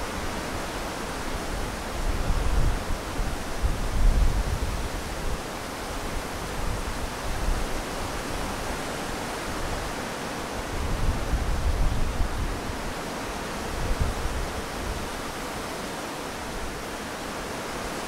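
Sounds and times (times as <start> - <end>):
wind rushing through tree leaves: 0.0 - 18.0
low wind rumble: 10.6 - 15.8.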